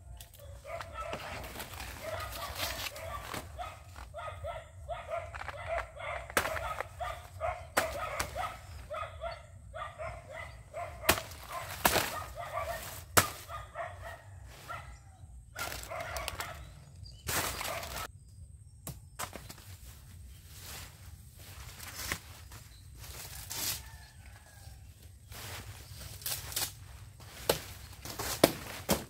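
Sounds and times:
dry leaves rustling and crackling: 0.4 - 4.1, 11.0 - 13.6, 15.6 - 16.7, 17.3 - 18.1, 19.8 - 29.0.

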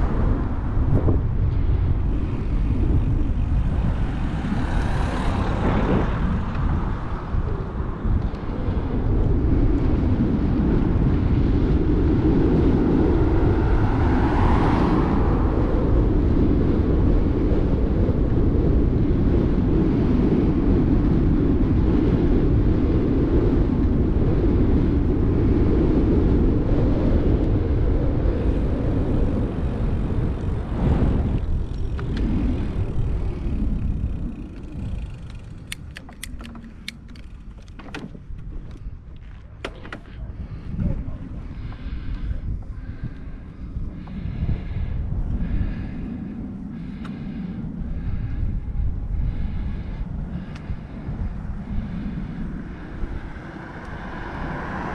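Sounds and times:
wind buffeting microphone: 0.0 - 54.9
sharp clicks: 35.2 - 37.9.

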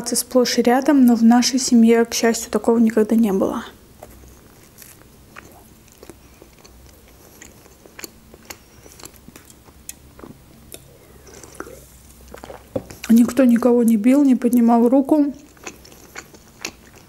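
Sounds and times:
person chewing: 4.0 - 13.4, 15.4 - 17.0.

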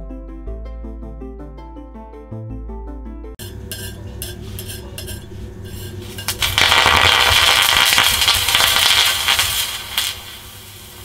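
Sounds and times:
rod stirring powder scraping: 3.4 - 10.7
hissing crackling burn: 3.4 - 11.0.

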